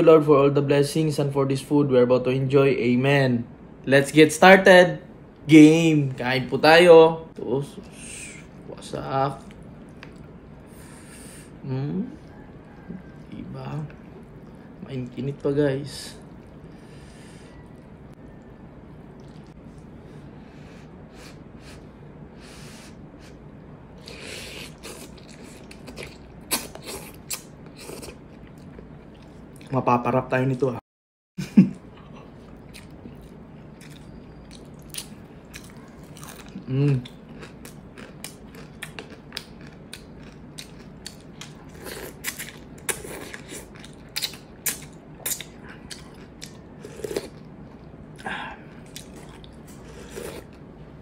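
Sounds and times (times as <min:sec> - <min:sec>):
wet mouth clicks and chewing: 0:19.2 - 0:19.8, 0:24.0 - 0:29.7, 0:32.0 - 0:50.6.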